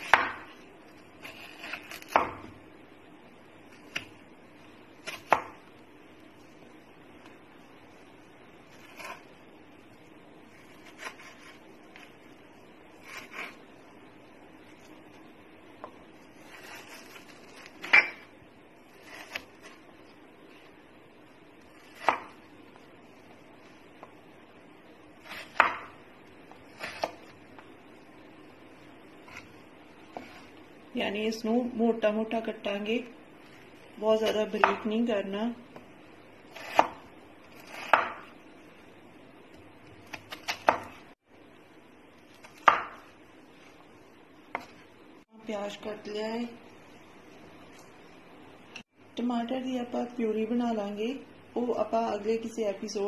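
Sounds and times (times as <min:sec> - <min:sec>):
knife chopping on wooden board: 0:00.0 - 0:00.5, 0:01.2 - 0:02.5, 0:05.0 - 0:05.6, 0:21.8 - 0:22.4, 0:25.3 - 0:26.0, 0:36.6 - 0:38.3, 0:40.1 - 0:41.0, 0:42.5 - 0:43.1.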